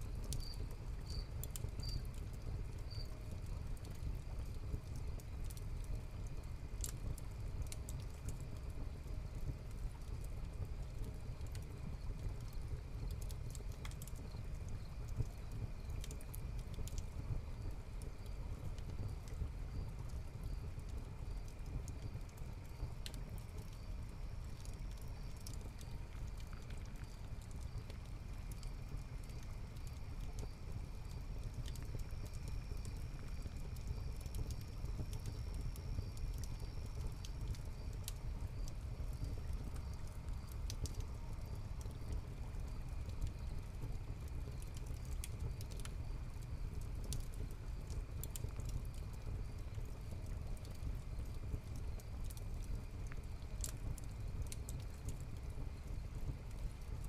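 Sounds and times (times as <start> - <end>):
fire crackling and popping: 0.0 - 57.0
crickets chirping: 0.2 - 2.1.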